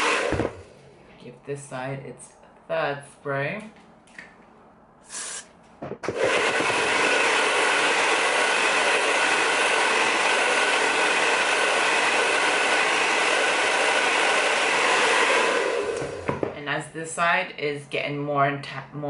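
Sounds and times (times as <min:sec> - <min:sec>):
hair dryer blowing: 0:00.0 - 0:00.8, 0:05.1 - 0:16.5.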